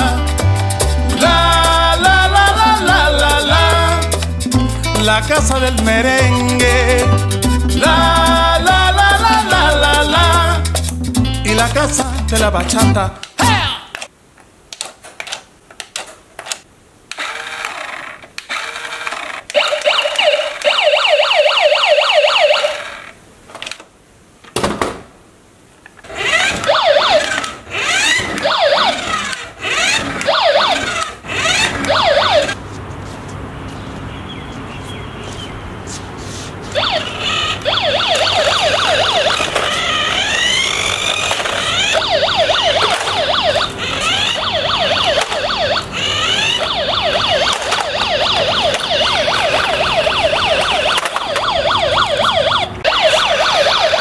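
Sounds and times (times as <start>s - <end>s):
toy car electronic siren: 17.2s - 23.1s, 26.1s - 32.6s, 36.8s - 54.0s.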